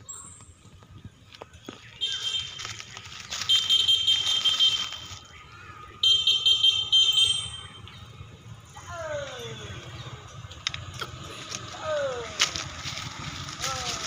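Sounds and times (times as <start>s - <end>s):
cicadas buzzing: 1.7s - 8.4s.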